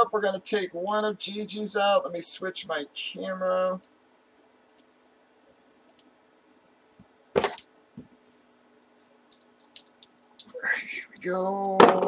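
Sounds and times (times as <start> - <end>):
faint steady hum: 0.0 - 12.0
small clicks: 4.7 - 4.9, 5.5 - 6.1, 9.3 - 11.8.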